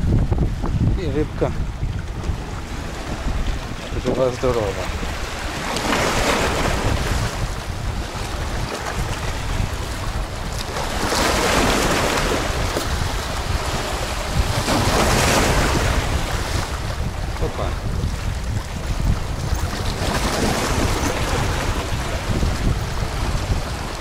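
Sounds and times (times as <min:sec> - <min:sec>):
waves breaking over boulders: 0:00.0 - 0:24.0
wind buffeting microphone: 0:00.0 - 0:24.0.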